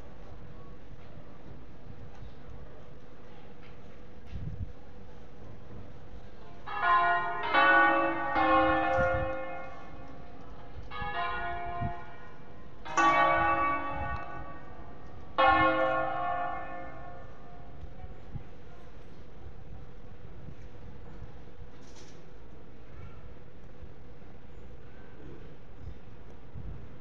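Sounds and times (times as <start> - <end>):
church bells ringing: 6.6 - 17.9.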